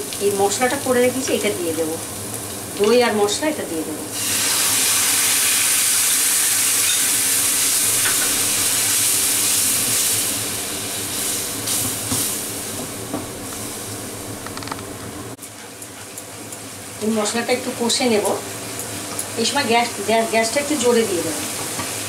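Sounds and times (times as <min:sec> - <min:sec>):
paste sizzling in hot oil: 0:04.1 - 0:14.2.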